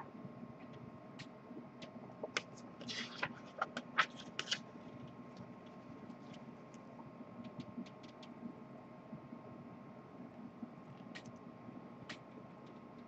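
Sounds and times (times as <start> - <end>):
paper pages rustling: 2.2 - 5.0.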